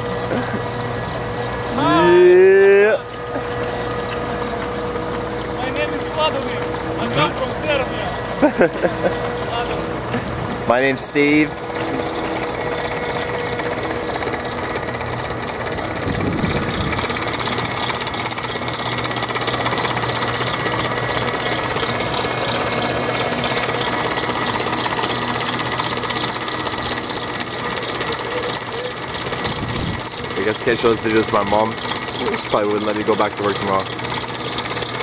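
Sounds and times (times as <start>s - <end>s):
hoist motors humming: 0.0s - 35.0s.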